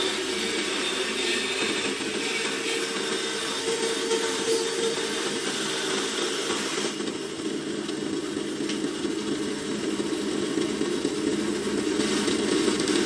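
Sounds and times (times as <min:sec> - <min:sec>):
bandsaw cutting plywood: 0:00.0 - 0:07.2.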